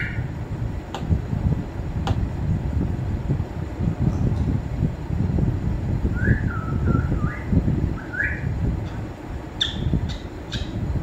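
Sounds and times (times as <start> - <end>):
parrot whistling: 6.2 - 8.4, 9.6 - 10.8
parrot clicking chirps: 9.6 - 10.8.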